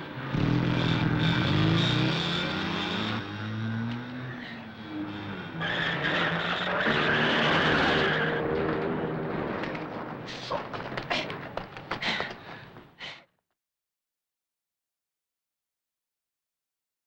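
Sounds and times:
small engine accelerating: 0.2 - 9.6.

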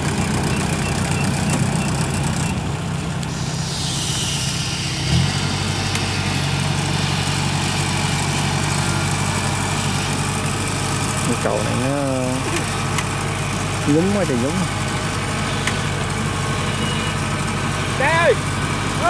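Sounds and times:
farm machine engine running: 0.0 - 19.0
hiss: 3.1 - 13.2.

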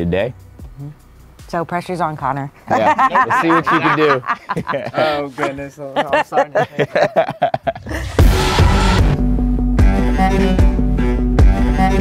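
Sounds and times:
background music with deep bass: 0.0 - 5.5, 8.1 - 12.0
person laughing: 2.7 - 8.3.

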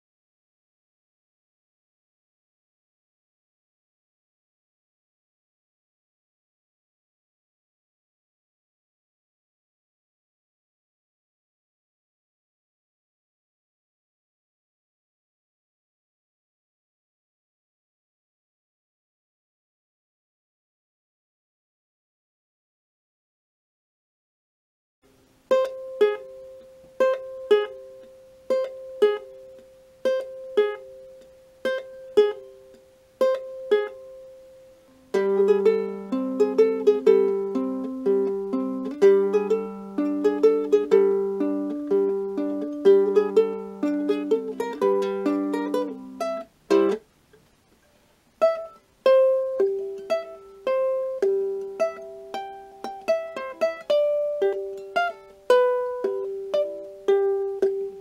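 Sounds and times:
ukulele played fingerstyle: 25.1 - 58.0.

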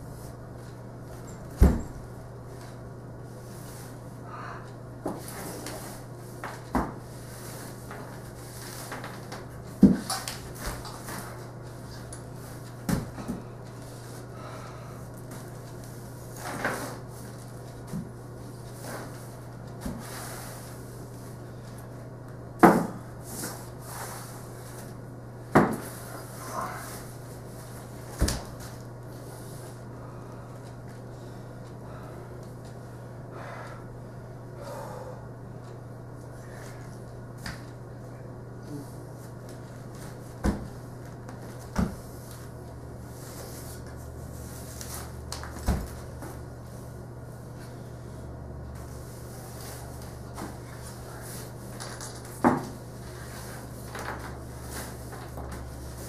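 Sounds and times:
person hopping barefoot: 39.5 - 42.1.

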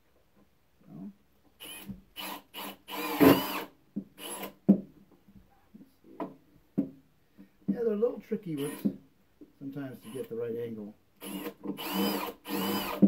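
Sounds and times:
cordless drill driving screws: 1.6 - 4.6, 8.6 - 9.0, 10.0 - 10.3, 11.2 - 13.0.

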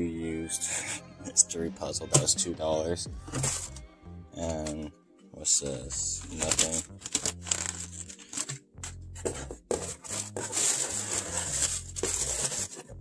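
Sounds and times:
paper packing crumpling: 6.2 - 8.6, 9.3 - 12.9.

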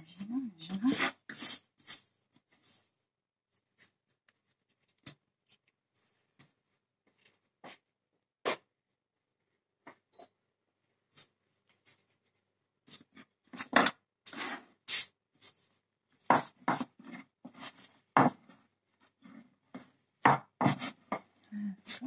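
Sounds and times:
dough being kneaded by hand: 11.0 - 22.0
rolling pin on worktop: 12.8 - 15.1, 16.2 - 22.0.

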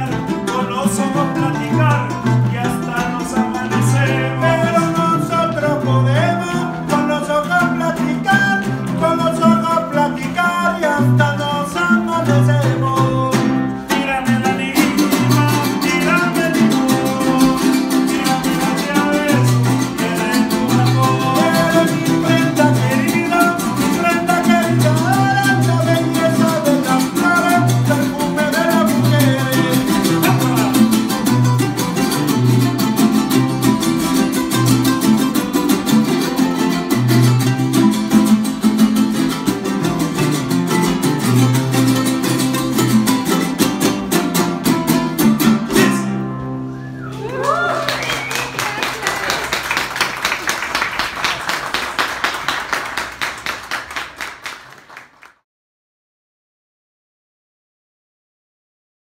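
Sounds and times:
man singing: 0.0 - 38.3, 45.6 - 46.3
bass line: 0.0 - 48.3
acoustic guitars strummed and plucked: 0.0 - 54.3.

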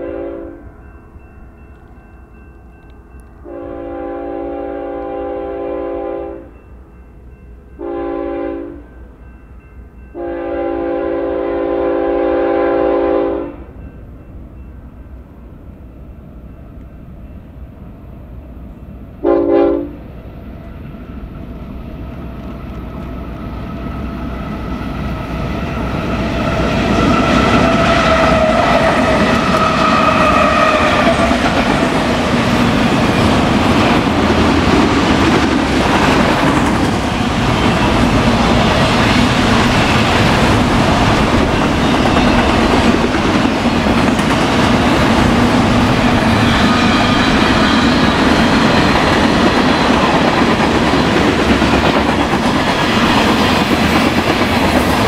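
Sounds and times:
locomotive air horn blasts: 0.0 - 0.6, 3.4 - 6.5, 7.8 - 8.8, 10.2 - 13.7, 19.2 - 20.0, 26.6 - 31.1
train rumble and wheel noise: 0.0 - 55.0.

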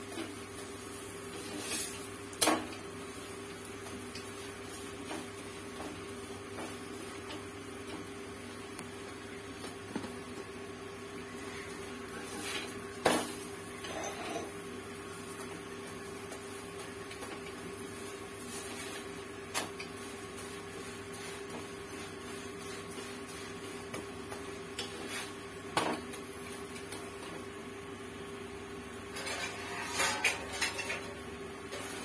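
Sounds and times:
spatula scraping griddle: 0.9 - 2.6, 11.4 - 14.6, 16.4 - 25.5, 29.1 - 32.0
sharp clack on griddle: 1.3 - 2.8, 12.2 - 14.5, 16.3 - 17.7, 18.5 - 20.5, 23.8 - 27.4, 29.1 - 32.0.

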